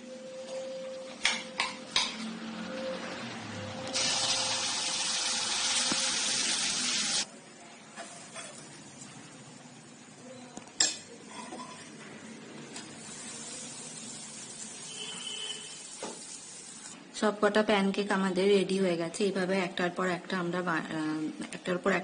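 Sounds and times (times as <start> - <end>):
batter sizzling in a pan: 4.0 - 7.3, 12.8 - 17.0.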